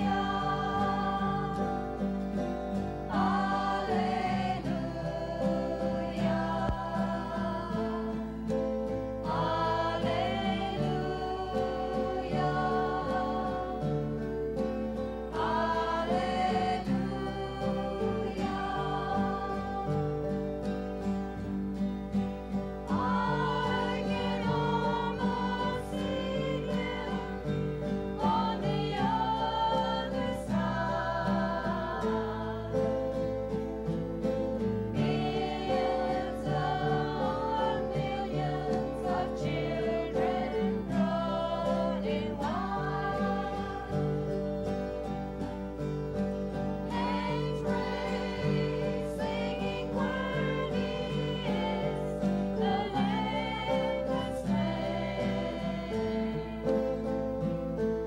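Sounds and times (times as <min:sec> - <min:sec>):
acoustic guitars: 0:00.0 - 0:58.0
choir singing: 0:00.0 - 0:58.0.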